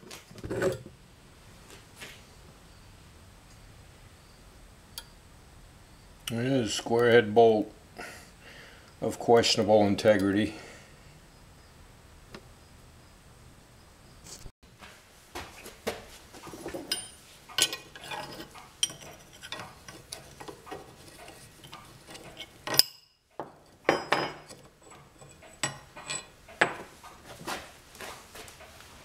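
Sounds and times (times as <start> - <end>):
wrench clinking on metal bolt: 16.9 - 26.8.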